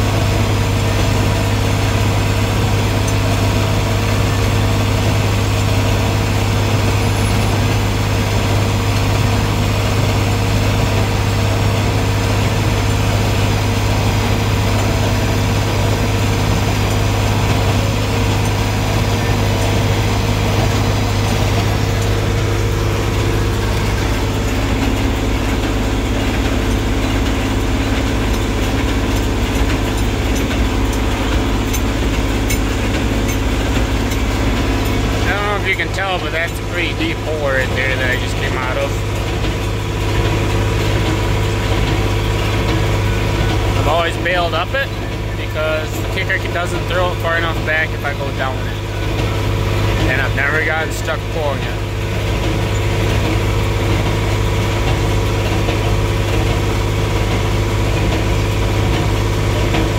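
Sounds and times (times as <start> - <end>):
hay baler working: 0.0 - 59.9
tractor engine droning: 0.0 - 59.9.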